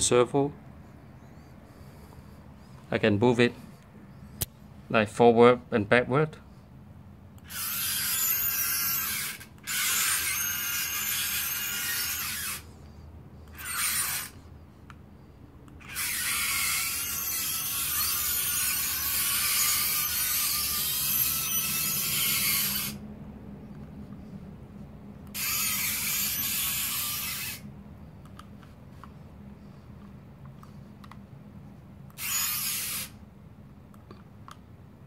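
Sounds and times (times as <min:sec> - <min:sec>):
robot drive motors whirring: 0:07.4 - 0:12.8, 0:13.5 - 0:14.4, 0:15.8 - 0:23.0, 0:25.2 - 0:27.6, 0:32.1 - 0:33.2.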